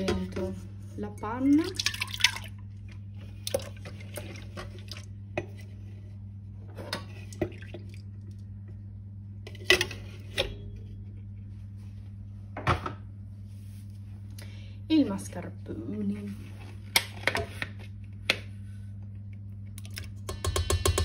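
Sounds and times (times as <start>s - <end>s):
low hum: 0.0s - 17.0s
jug knocking against metal bowl: 20.2s - 21.0s.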